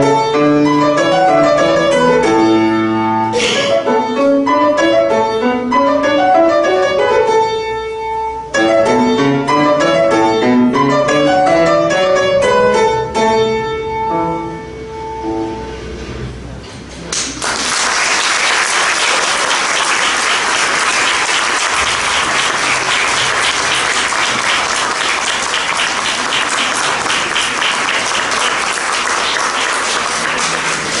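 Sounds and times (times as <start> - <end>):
audience applauding: 17.2 - 31.0.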